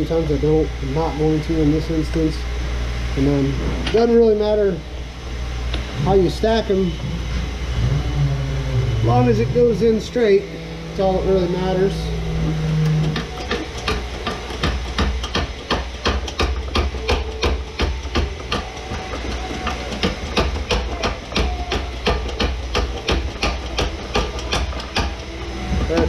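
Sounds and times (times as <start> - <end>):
low steady hum: 0.0 - 26.0
hydraulic pump clicking: 12.4 - 26.0.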